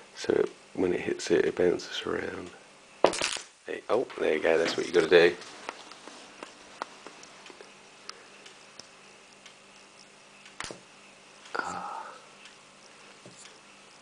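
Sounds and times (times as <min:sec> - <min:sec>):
magnet ticking in motor coil: 0:06.8 - 0:14.0.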